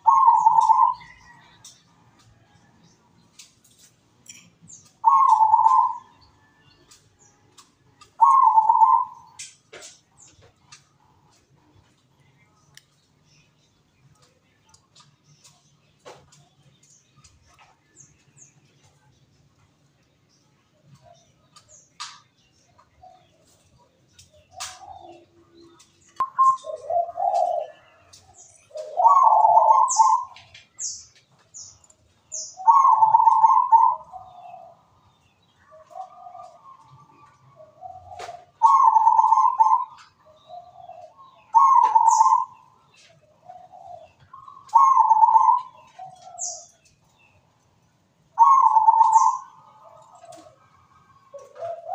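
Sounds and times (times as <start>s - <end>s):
dove cooing: 0.0s - 1.4s, 5.0s - 6.4s, 8.0s - 9.4s, 24.4s - 30.6s, 32.6s - 34.9s, 35.6s - 46.8s, 48.4s - 51.9s
faint clicks: 12.6s - 13.0s, 14.0s - 19.0s.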